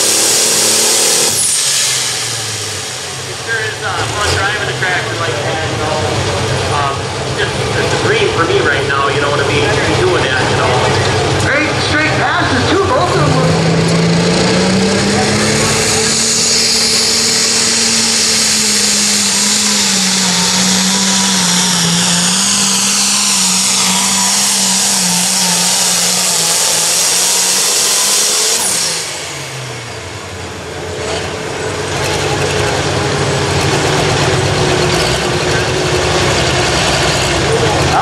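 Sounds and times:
diesel tractor engine at full throttle: 0.0 - 38.0.

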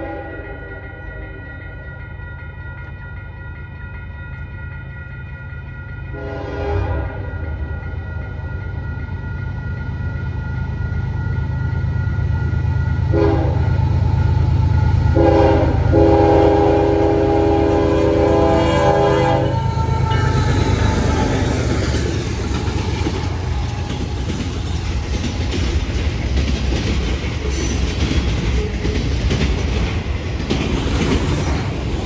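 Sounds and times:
crossing signal bell ringing: 0.0 - 30.4
locomotive air horn blasts: 6.1 - 7.3, 13.1 - 13.7, 15.1 - 21.2
diesel locomotive rumble: 7.4 - 32.0.

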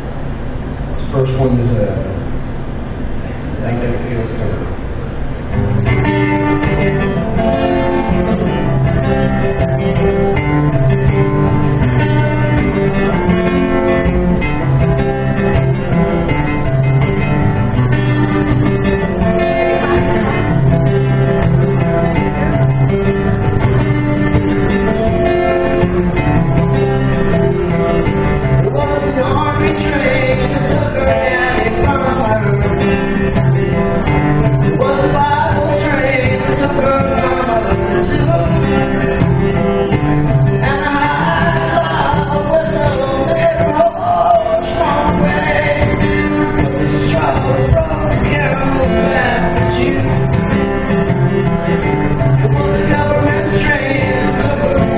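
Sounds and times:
strummed guitar: 0.0 - 54.9
man singing: 28.4 - 33.8, 34.6 - 39.6, 40.5 - 54.9.

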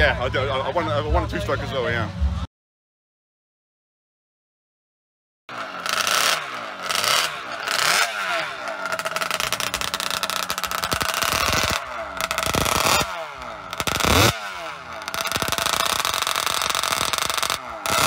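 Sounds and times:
motorcycle engine revving: 5.5 - 18.0.

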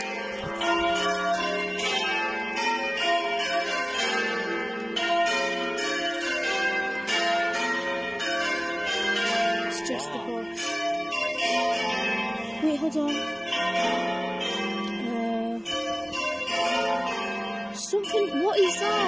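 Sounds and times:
church bells ringing: 0.0 - 19.0
person speaking: 9.8 - 10.6, 12.4 - 13.2, 14.9 - 15.7, 17.8 - 19.0.

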